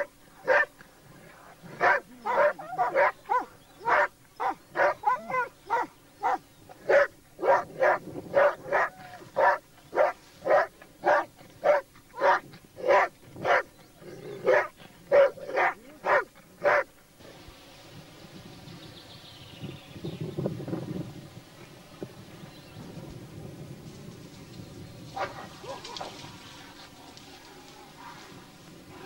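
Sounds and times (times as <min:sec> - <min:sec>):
dog barking: 0:00.4 - 0:00.7, 0:01.8 - 0:13.7, 0:14.4 - 0:16.9, 0:25.2 - 0:26.2.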